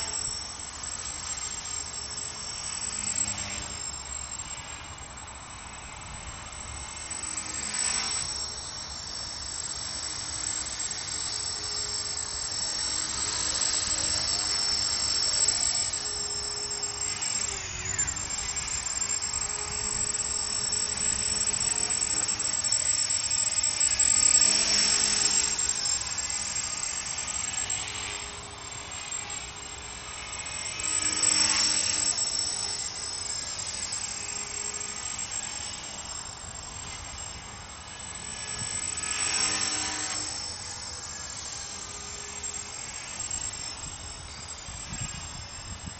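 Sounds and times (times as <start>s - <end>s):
electric motor whine: 0.0s - 45.9s
helicopter rotor hum: 0.0s - 45.9s.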